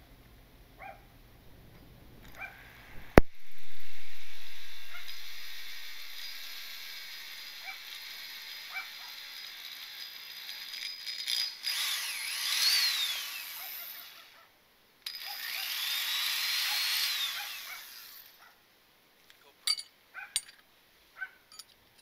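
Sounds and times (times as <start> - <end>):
power drill boring into metal: 2.6 - 14.3, 15.1 - 18.4.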